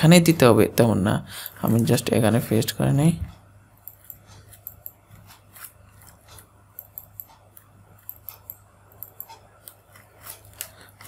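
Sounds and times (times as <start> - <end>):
low steady hum: 0.0 - 11.0
keyboard and mouse clicks: 3.8 - 11.0.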